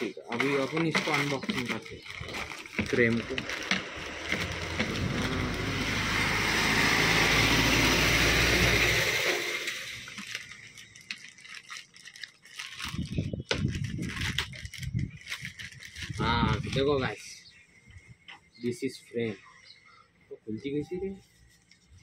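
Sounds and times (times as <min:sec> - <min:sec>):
plastic bag crinkling: 0:00.0 - 0:06.2, 0:08.6 - 0:17.3
passing vehicle: 0:03.2 - 0:10.1.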